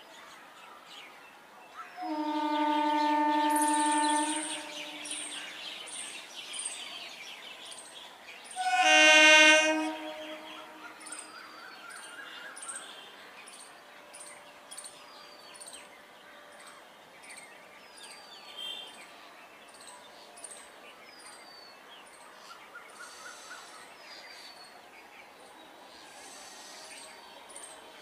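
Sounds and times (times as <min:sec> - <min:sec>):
train horn blast: 0:02.0 - 0:05.7, 0:08.5 - 0:11.3
bird chirping: 0:02.0 - 0:06.8.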